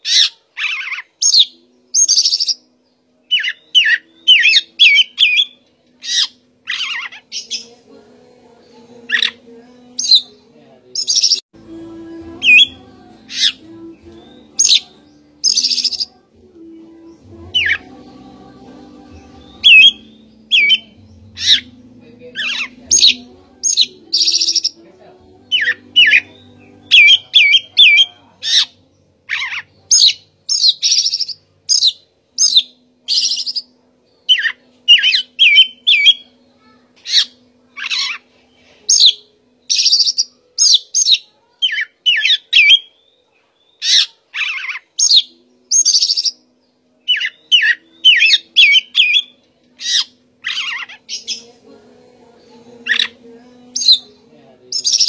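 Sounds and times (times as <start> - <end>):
bird singing whistled notes: 3.3 - 7.7, 19.4 - 21.7, 25.5 - 28.7, 29.4 - 36.4, 38.9 - 46.4, 47.0 - 51.5, 54.8 - 55.0.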